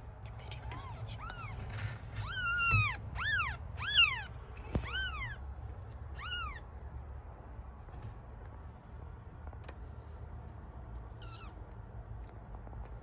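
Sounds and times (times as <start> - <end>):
kitten mewing: 0.6 - 5.4, 6.1 - 6.6.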